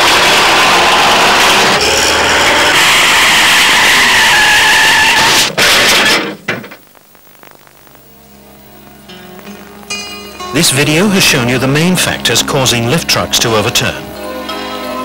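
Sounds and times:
forklift skidding and scraping: 0:00.0 - 0:06.5
faint steady tones: 0:06.2 - 0:15.0.

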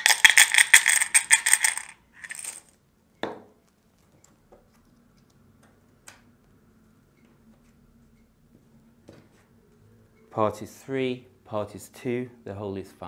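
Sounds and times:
plastic counters rattling in a pot: 0:00.0 - 0:02.7.

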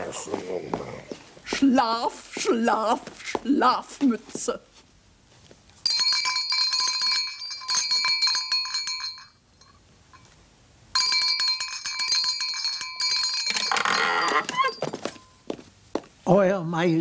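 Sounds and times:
small brass bell jangling: 0:05.9 - 0:10.3, 0:11.0 - 0:15.4.

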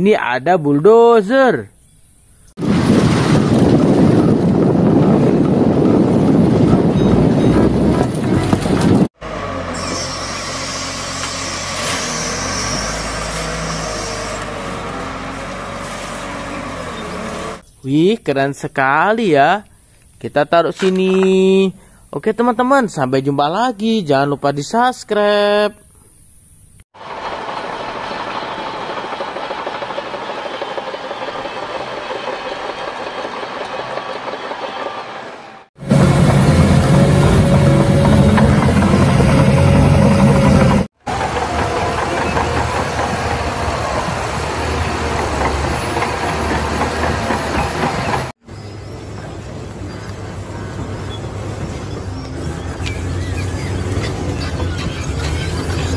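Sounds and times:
diesel engine running: 0:02.6 - 0:17.6, 0:27.0 - 0:55.9
steel tracks clattering: 0:27.0 - 0:55.9.

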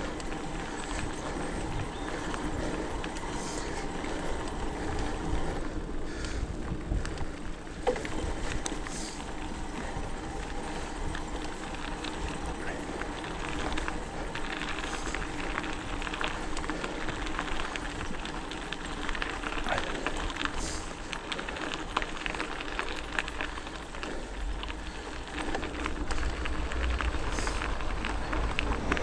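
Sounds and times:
bike rattling clicks: 0:00.0 - 0:29.0
bike tyres on dirt and gravel: 0:00.0 - 0:29.0
wind rumble on microphone: 0:00.0 - 0:29.0.

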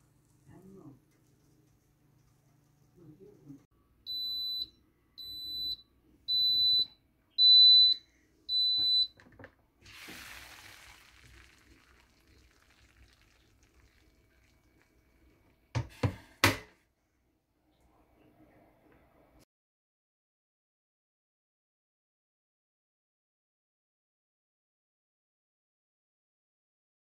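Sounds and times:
pressure cooker beeps: 0:04.1 - 0:09.2.

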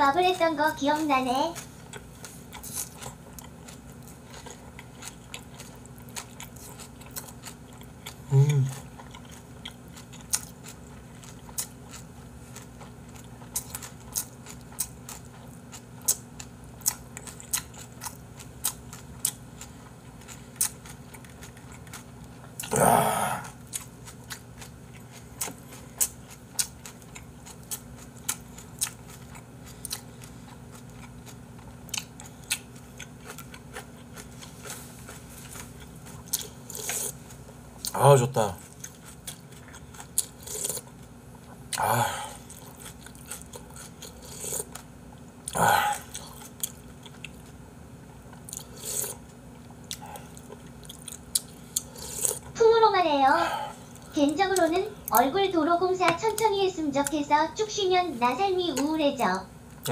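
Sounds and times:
close chewing: 0:00.4 - 0:22.8, 0:23.4 - 0:38.0, 0:38.6 - 0:41.8, 0:42.4 - 0:47.6, 0:48.3 - 0:52.6
voiced sigh: 0:22.7 - 0:23.6, 0:41.8 - 0:42.4, 0:45.5 - 0:46.2.

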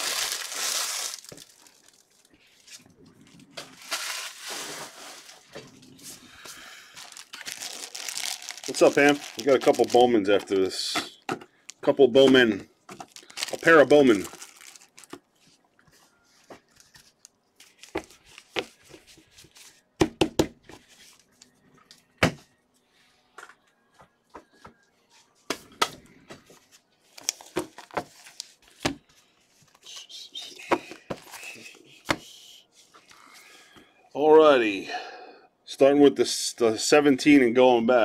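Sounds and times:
packaging rustle: 0:00.0 - 0:05.6, 0:06.4 - 0:10.6, 0:12.9 - 0:15.3, 0:27.1 - 0:28.8.

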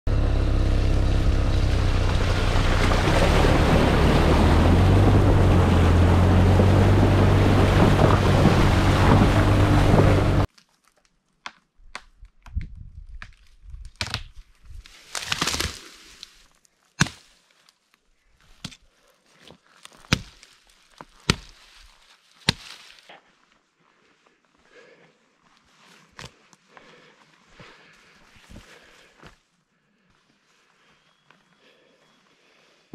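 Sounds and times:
wind buffeting microphone: 0:03.8 - 0:10.5.

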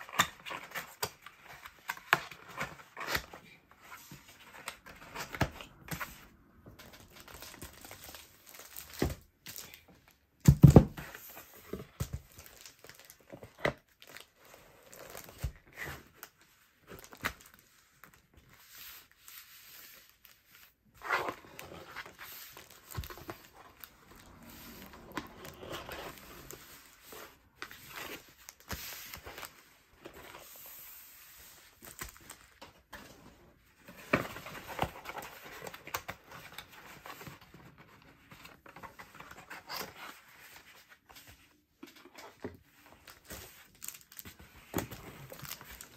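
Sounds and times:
cardboard rustling and scraping: 0:10.5 - 0:45.9.

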